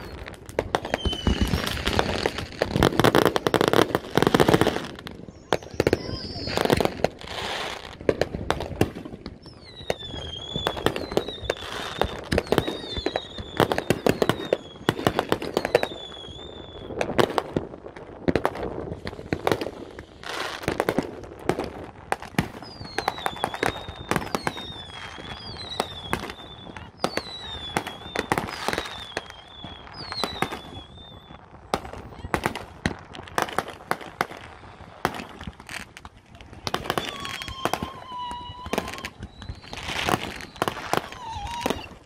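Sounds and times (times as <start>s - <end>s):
falling firework whistles: 0.0s - 7.9s, 9.2s - 17.4s, 22.3s - 32.6s, 36.6s - 42.0s
fireworks bangs and crackling: 0.0s - 42.0s.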